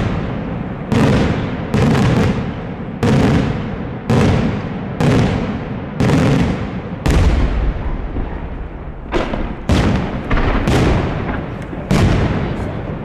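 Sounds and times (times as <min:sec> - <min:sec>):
fireworks bursting with loud bangs: 0:00.0 - 0:13.0.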